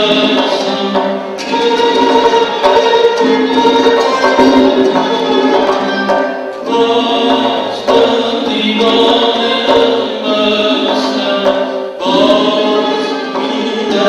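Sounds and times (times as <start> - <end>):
string wind and drum ensemble: 0.0 - 14.0
man singing long held phrases: 6.7 - 14.0.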